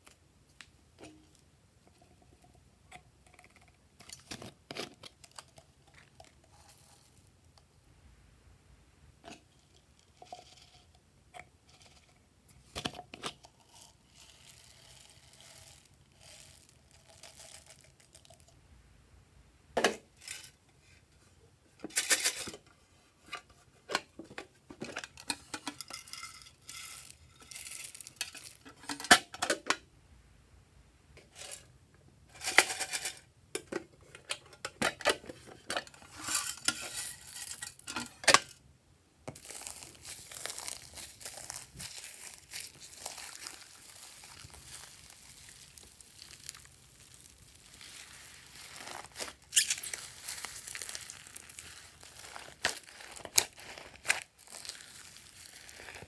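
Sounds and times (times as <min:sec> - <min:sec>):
beads pouring into glass dish: 0:13.8 - 0:18.6, 0:26.2 - 0:28.6, 0:39.4 - 0:56.0
hands handling plastic containers: 0:21.7 - 0:29.8, 0:39.2 - 0:56.0.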